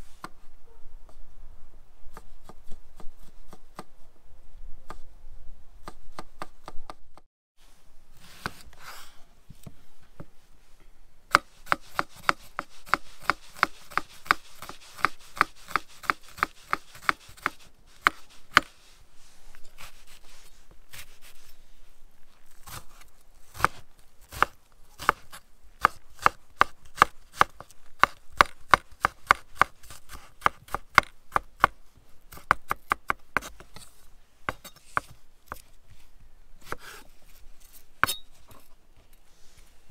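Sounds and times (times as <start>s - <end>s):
knife chopping on wooden board: 11.3s - 18.7s, 23.5s - 33.6s.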